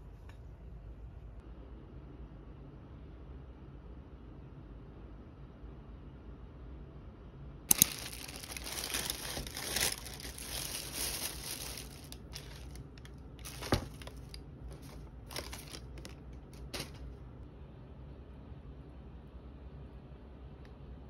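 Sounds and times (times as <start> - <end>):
plastic bag crinkling: 7.7 - 17.1.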